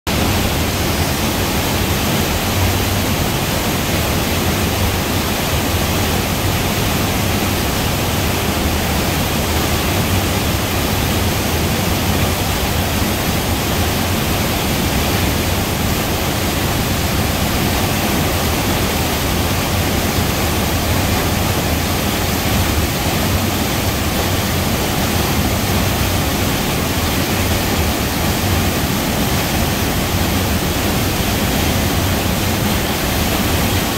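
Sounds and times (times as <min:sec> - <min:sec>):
waterfall rushing: 0:00.1 - 0:33.9.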